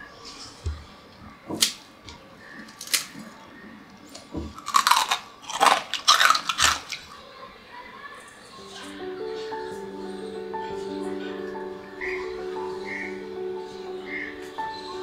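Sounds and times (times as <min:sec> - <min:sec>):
crunching fried snack: 0:02.6 - 0:03.4, 0:04.1 - 0:07.2.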